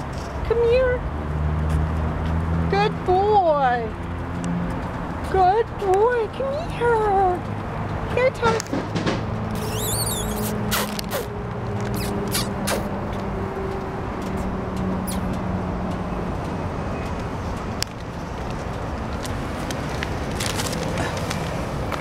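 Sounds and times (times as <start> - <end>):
vehicle hum and road noise: 0.0 - 22.0.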